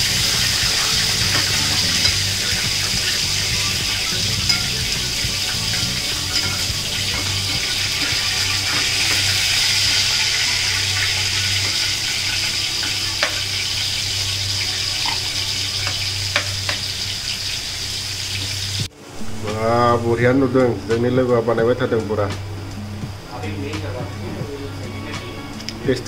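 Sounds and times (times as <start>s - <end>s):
prawns sizzling in oil: 0.0s - 18.9s.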